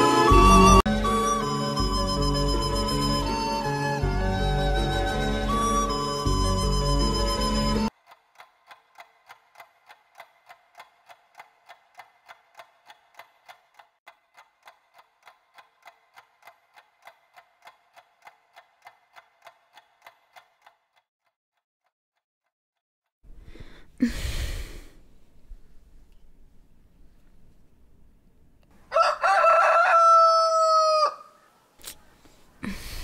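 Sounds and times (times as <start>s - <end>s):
clock ticking: 7.9s - 21.4s.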